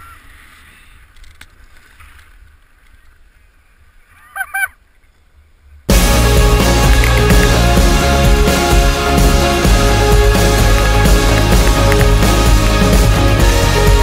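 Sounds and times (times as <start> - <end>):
loud music: 5.9 - 14.0.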